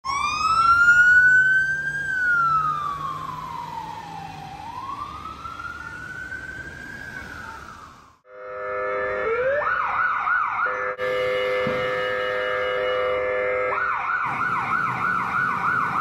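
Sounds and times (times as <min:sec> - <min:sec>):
ambulance siren wailing: 0:00.0 - 0:16.0.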